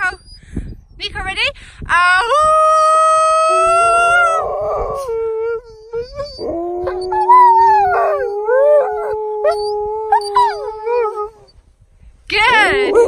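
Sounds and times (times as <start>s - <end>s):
dogs howling: 3.4s - 11.5s.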